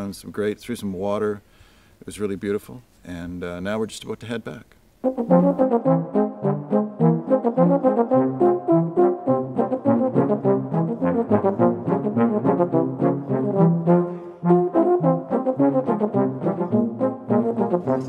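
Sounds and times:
trumpets playing melody: 0:05.0 - 0:18.0
tuba bass notes: 0:05.0 - 0:18.0.

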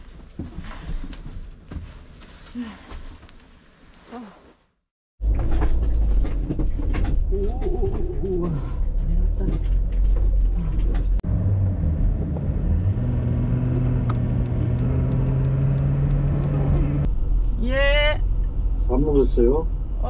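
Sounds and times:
road and engine rumble inside vehicle: 0:05.2 - 0:20.0.

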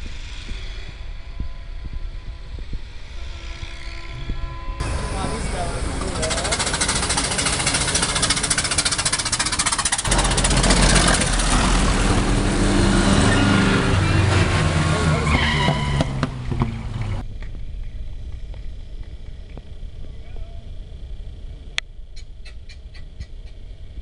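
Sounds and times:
car engine revving through gears: 0:04.8 - 0:17.2
old car engine pulsing: 0:04.8 - 0:24.0
quiet car engine: 0:04.8 - 0:24.0.

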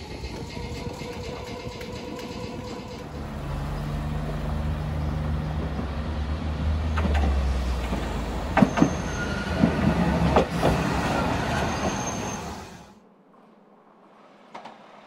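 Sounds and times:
streetcar running hum: 0:00.0 - 0:13.0
wheels clacking over rail joints: 0:00.3 - 0:12.2
high wheel squeals: 0:07.3 - 0:12.9.

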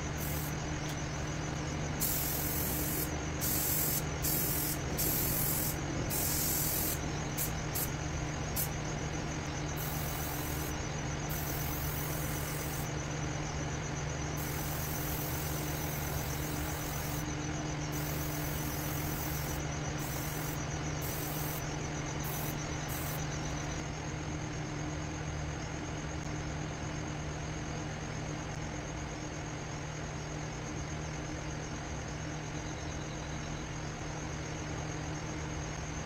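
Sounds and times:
low machine hum: 0:00.0 - 0:36.0
spray paint can hissing: 0:00.1 - 0:00.6, 0:02.0 - 0:08.0, 0:08.6 - 0:08.8, 0:09.8 - 0:12.9, 0:14.4 - 0:17.2, 0:17.9 - 0:21.6, 0:22.2 - 0:23.2.

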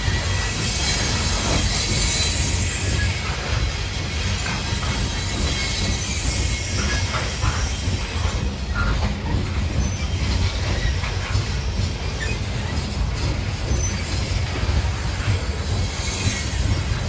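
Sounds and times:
train wheels rumbling on rails: 0:00.0 - 0:17.0
faint wheel squeals: 0:05.2 - 0:14.5.

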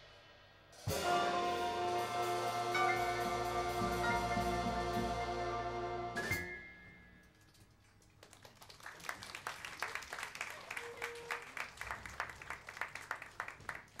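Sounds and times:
small audience applauding: 0:07.3 - 0:14.0.

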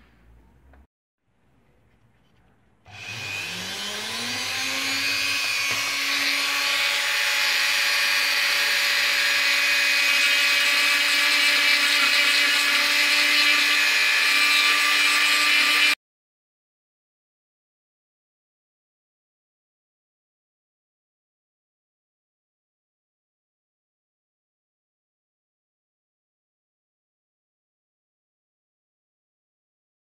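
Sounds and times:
rotary tool drilling: 0:02.9 - 0:16.0.

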